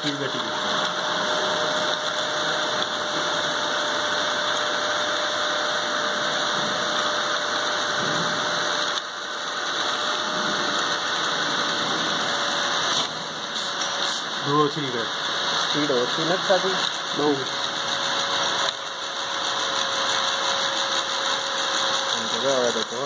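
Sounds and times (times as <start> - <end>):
vacuum cleaner motor whirring: 0.0 - 23.0.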